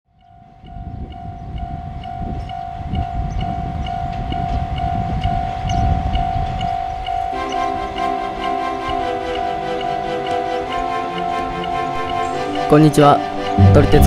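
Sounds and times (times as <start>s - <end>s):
diesel railcar engine and wheels rumbling: 0.4s - 14.0s
level crossing bell ringing: 3.6s - 14.0s.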